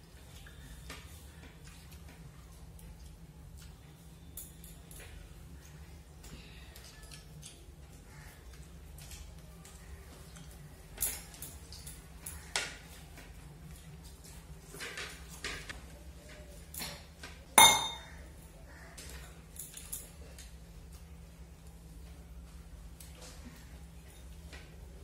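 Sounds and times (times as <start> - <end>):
dishes clinking and scraping: 17.6 - 18.1
ringing clink of a dish: 17.6 - 18.1.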